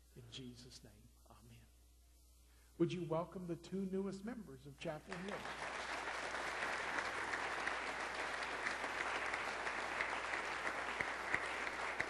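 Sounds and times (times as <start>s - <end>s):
congregation applauding: 5.1s - 12.0s.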